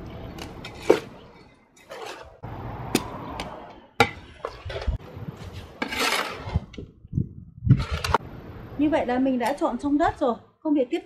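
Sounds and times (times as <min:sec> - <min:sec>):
shovel scraping through soil: 0:01.8 - 0:02.4, 0:04.5 - 0:06.8.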